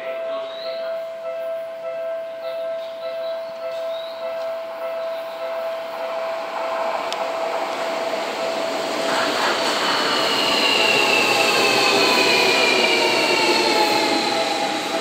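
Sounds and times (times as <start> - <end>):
electric train approaching: 0.0 - 15.0.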